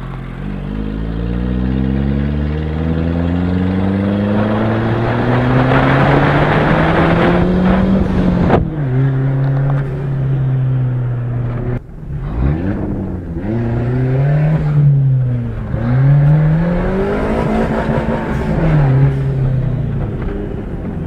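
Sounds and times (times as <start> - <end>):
car engine revving: 0.0 - 21.0.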